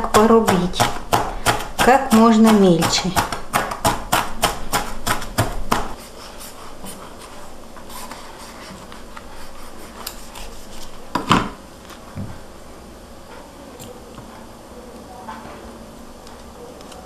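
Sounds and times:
knife chopping on cutting board: 0:00.0 - 0:06.0.

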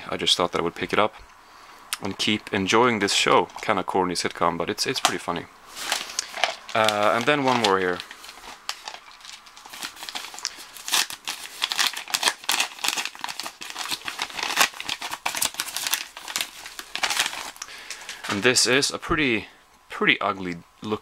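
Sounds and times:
packaging crinkling and tearing: 0:05.8 - 0:18.6.

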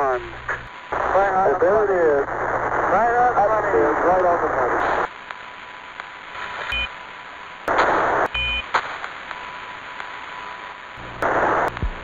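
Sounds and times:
radio static bursts: 0:00.0 - 0:12.0
short beeps: 0:06.7 - 0:06.9, 0:08.3 - 0:08.7.

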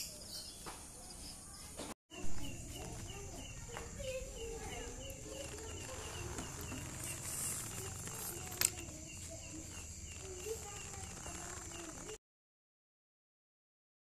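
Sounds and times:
insects chirping: 0:00.0 - 0:12.2
high insect drone: 0:02.1 - 0:12.2.

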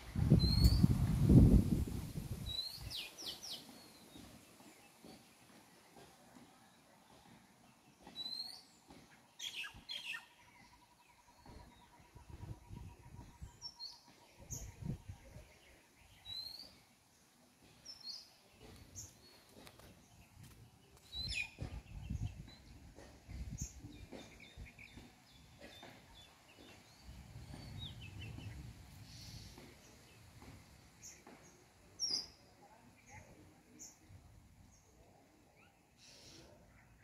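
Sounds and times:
small birds chirping: 0:00.0 - 0:01.0, 0:02.3 - 0:37.0
low rumbling on microphone: 0:00.0 - 0:02.6.

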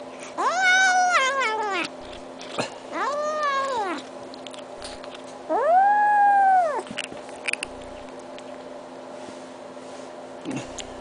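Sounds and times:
kitten meowing: 0:00.4 - 0:01.9, 0:02.9 - 0:04.1, 0:05.5 - 0:06.9.

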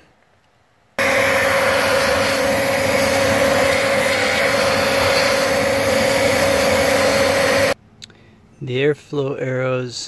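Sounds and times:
vacuum cleaner whine: 0:01.0 - 0:07.8.

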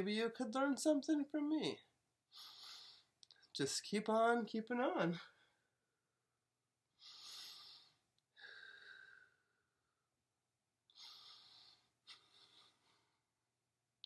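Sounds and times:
woman breathing deeply: 0:07.0 - 0:09.6, 0:10.9 - 0:13.2.

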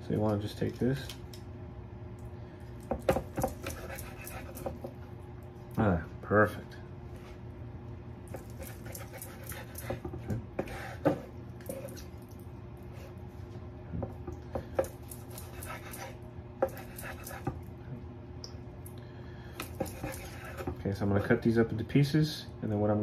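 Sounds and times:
knife cutting on wooden board: 0:03.0 - 0:05.0, 0:08.3 - 0:12.0, 0:14.8 - 0:17.6, 0:19.6 - 0:20.8.

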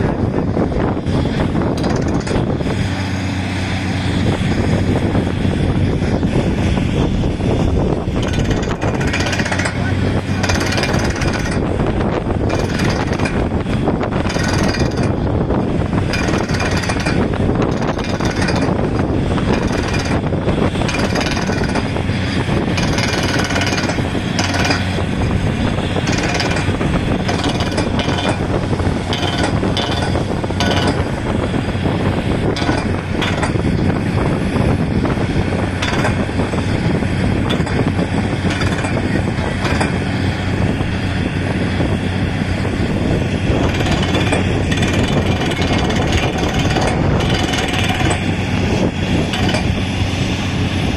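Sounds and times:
engine drone: 0:00.0 - 0:50.9
drill string knocking: 0:01.7 - 0:02.6, 0:08.1 - 0:09.8, 0:10.4 - 0:15.3, 0:16.0 - 0:22.0, 0:22.6 - 0:25.0, 0:26.0 - 0:31.4, 0:32.4 - 0:34.0, 0:35.8 - 0:36.3, 0:37.4 - 0:40.1, 0:43.6 - 0:49.9.

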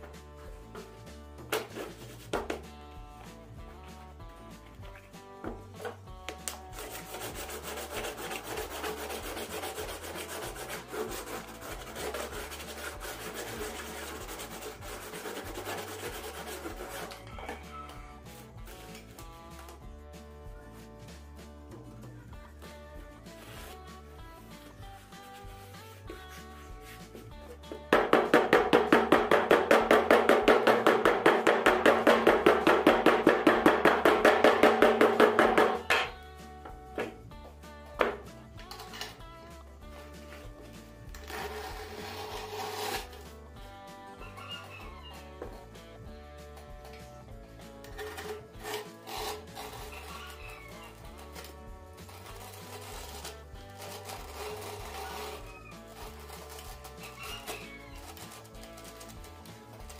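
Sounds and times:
plastic bottle tip rubbing woven mat: 0:01.5 - 0:02.7, 0:06.4 - 0:19.6, 0:23.0 - 0:27.5, 0:39.9 - 0:43.4, 0:47.9 - 0:59.9
hammer tapping on rubber: 0:27.9 - 0:36.2.

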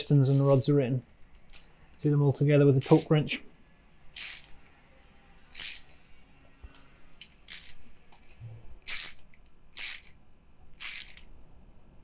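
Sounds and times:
socket ratchet clicking: 0:00.3 - 0:00.6, 0:01.3 - 0:01.7, 0:04.2 - 0:04.5, 0:05.6 - 0:06.0, 0:07.2 - 0:10.1, 0:10.8 - 0:11.3.

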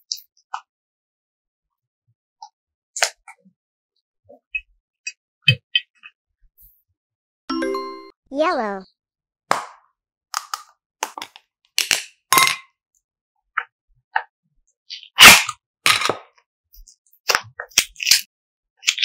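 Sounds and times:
plastic box clicks and cracks: 0:10.3 - 0:12.2.

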